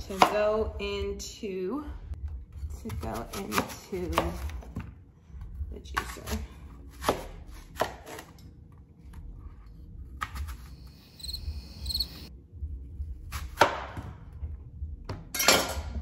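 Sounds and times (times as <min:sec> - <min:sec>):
knife chopping on cutting board: 0:02.9 - 0:04.9, 0:06.0 - 0:08.3, 0:13.3 - 0:14.2.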